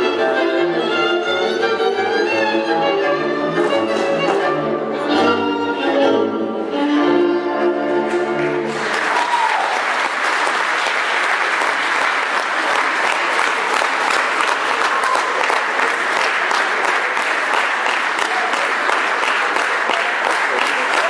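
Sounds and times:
fiddle folk dance music: 0:00.0 - 0:08.7
audience applause: 0:08.1 - 0:21.0.

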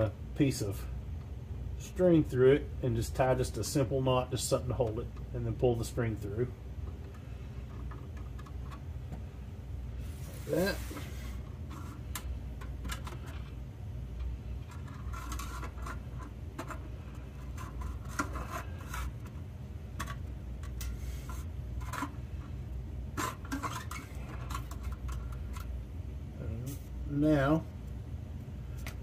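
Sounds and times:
steady low hum: 0:00.0 - 0:29.0
wire rubbing against metal: 0:14.6 - 0:19.4, 0:23.1 - 0:25.6.

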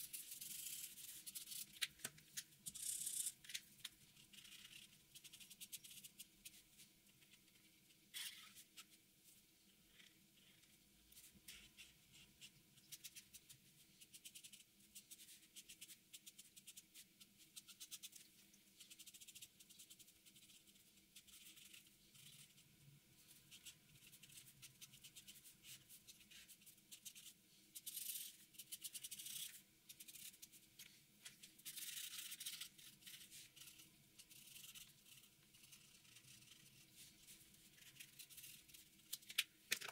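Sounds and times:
marker pen scratching on paper: 0:18.8 - 0:22.6.

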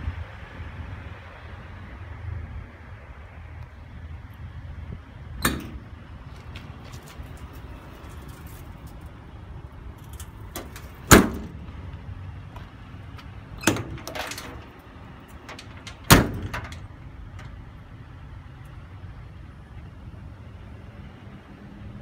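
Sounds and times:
low steady rumble: 0:00.0 - 0:22.0
latch clicks: 0:05.4 - 0:05.9, 0:10.0 - 0:11.8, 0:13.6 - 0:17.6
metal doors banging shut: 0:05.4 - 0:06.0, 0:10.2 - 0:11.8, 0:13.6 - 0:17.6.

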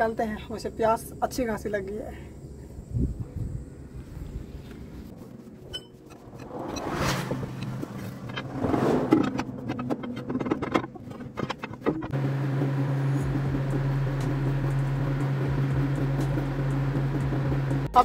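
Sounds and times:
passing vehicles: 0:03.2 - 0:17.9
knocks and clatter: 0:05.8 - 0:12.2.

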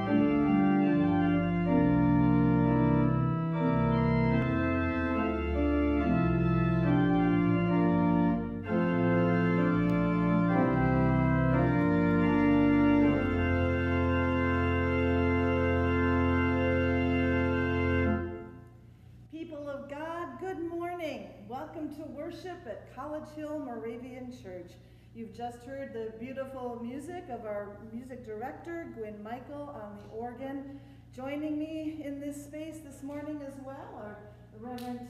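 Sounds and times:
church organ playing chords: 0:00.0 - 0:18.9.

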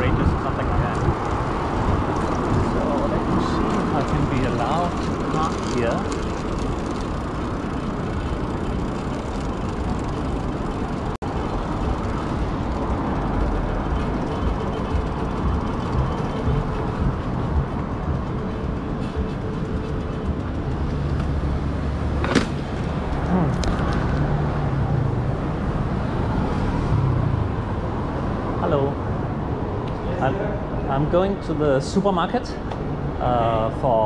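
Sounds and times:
city traffic: 0:00.0 - 0:34.0
bike rumbling over brick paving: 0:00.2 - 0:24.3.

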